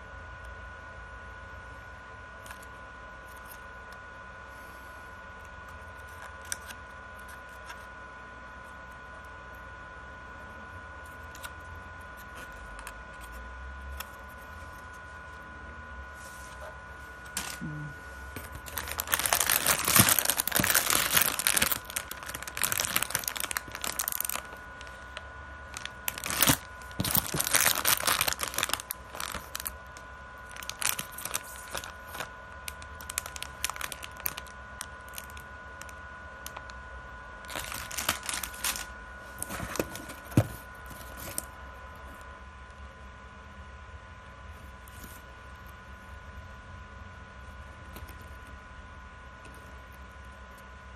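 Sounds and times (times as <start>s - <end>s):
faint high whine: 0.0s - 50.9s
plastic packaging crackling: 17.3s - 17.7s, 18.4s - 36.7s, 37.4s - 41.5s.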